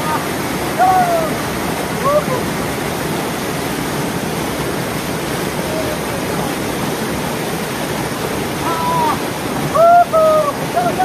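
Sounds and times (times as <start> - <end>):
stream rushing over boulders: 0.0 - 11.0
person shouting: 0.8 - 1.4, 8.6 - 9.2.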